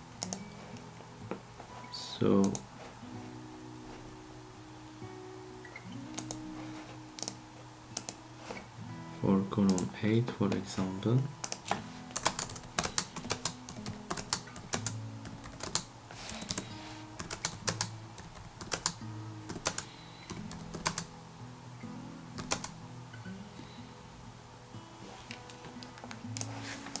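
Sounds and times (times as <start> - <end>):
quiet background music: 0.0 - 27.0
laptop keyboard typing: 0.2 - 0.5, 6.1 - 6.4, 7.2 - 7.4, 8.0 - 8.2, 11.4 - 21.1, 22.4 - 22.8, 25.9 - 27.0.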